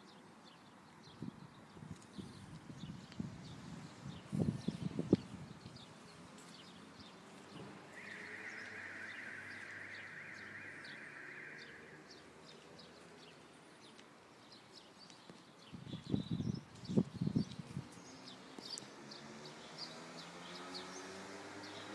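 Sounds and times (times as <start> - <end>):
faint bird chirps: 7.9 - 13.0.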